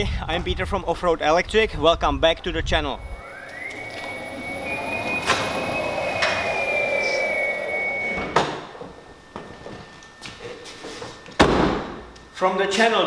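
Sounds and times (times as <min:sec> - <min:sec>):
electric car whine: 0:02.6 - 0:12.3.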